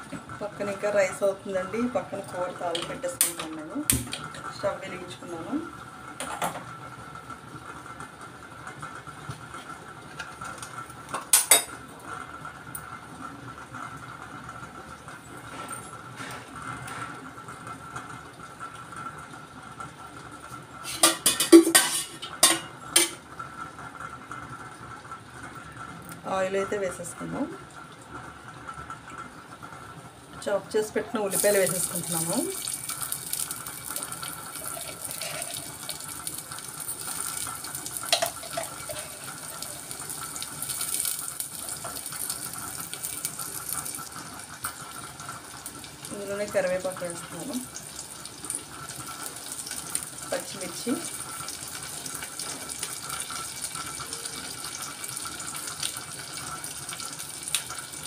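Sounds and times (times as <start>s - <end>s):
onions sizzling in hot oil: 16.0s - 58.0s.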